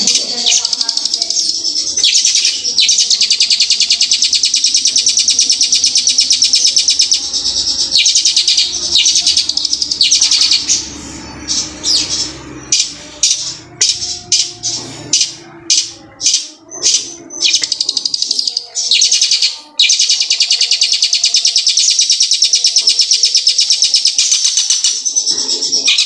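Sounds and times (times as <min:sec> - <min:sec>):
bird singing fast rolling trill: 0:00.0 - 0:26.0.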